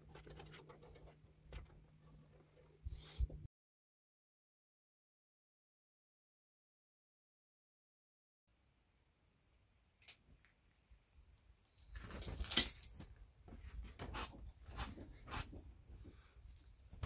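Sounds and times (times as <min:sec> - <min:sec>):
high bird chirp: 0:10.8 - 0:12.5.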